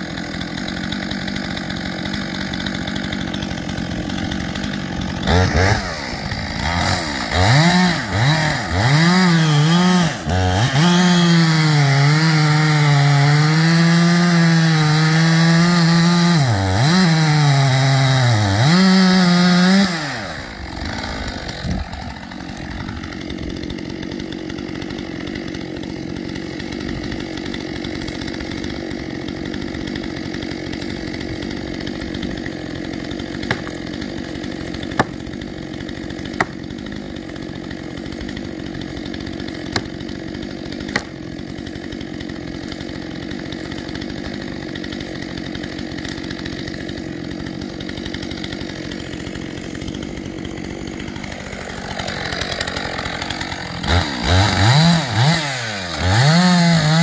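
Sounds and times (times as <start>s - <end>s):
chainsaw idling: 0.0s - 57.0s
sharp knocks or cracks: 33.4s - 33.8s.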